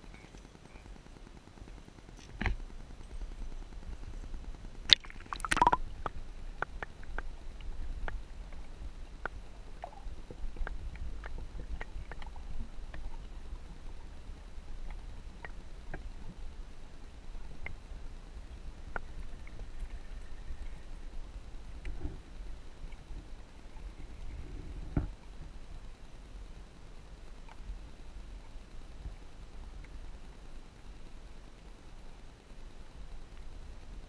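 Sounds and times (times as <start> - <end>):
muffled underwater rumble: 0.0 - 34.0.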